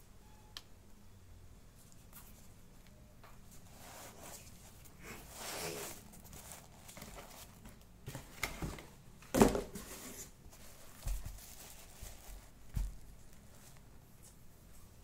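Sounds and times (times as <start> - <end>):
shoes knocking and rustling: 6.3 - 13.7
shoe thump: 9.3 - 9.8, 12.7 - 13.0.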